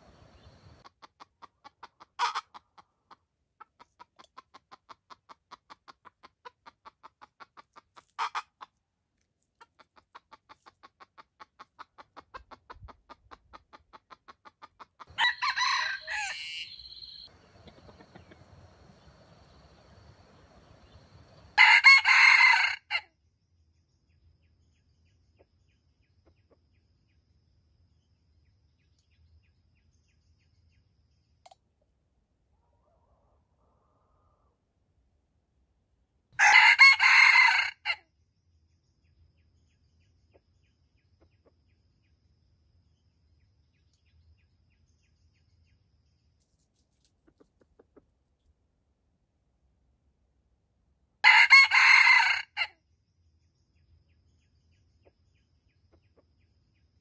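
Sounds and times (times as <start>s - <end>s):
soft rapid bird calls: 0.0s - 3.1s, 15.1s - 21.6s
rooster crowing: 15.1s - 23.0s, 36.4s - 38.0s, 51.2s - 52.7s
short sharp calls: 15.2s - 18.7s.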